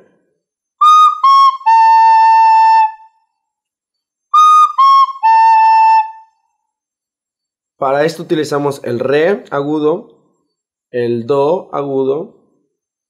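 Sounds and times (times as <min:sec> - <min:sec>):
recorder playing notes: 0:00.8 - 0:03.3, 0:04.3 - 0:06.5.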